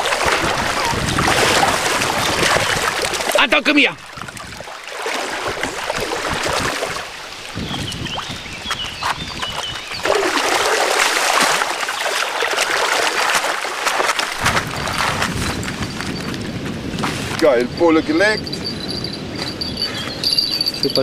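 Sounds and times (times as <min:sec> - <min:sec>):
fish thrashing in shallow water: 0:00.0 - 0:03.4, 0:04.1 - 0:07.2, 0:09.4 - 0:16.1.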